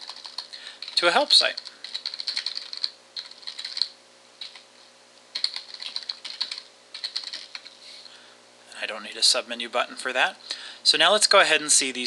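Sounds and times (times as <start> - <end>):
computer keyboard typing: 0.0 - 4.7, 5.3 - 7.8.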